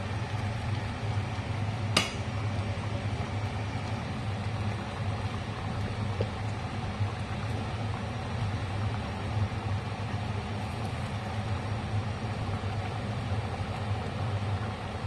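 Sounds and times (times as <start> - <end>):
wooden spatula knocking on pot: 2.0 - 2.2.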